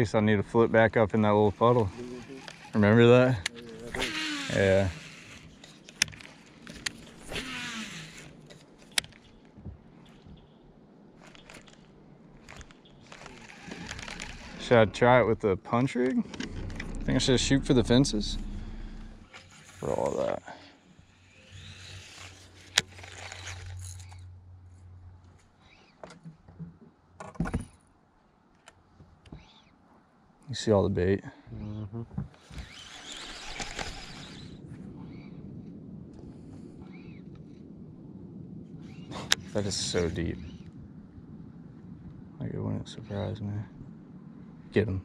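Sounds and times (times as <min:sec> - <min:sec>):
fishing reel whirring: 0:01.2 - 0:09.0, 0:12.4 - 0:14.6, 0:17.9 - 0:20.3, 0:21.0 - 0:24.2, 0:32.5 - 0:34.6.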